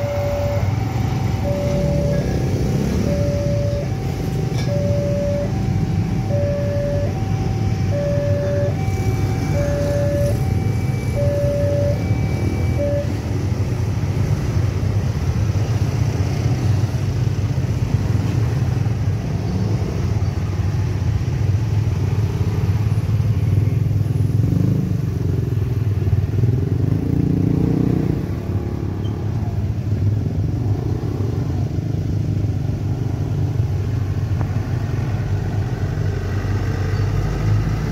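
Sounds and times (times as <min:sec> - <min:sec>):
electronic warning sounder: 0:00.0 - 0:14.4
heavy vehicle passing: 0:00.0 - 0:20.2
motorbikes passing: 0:00.0 - 0:37.9.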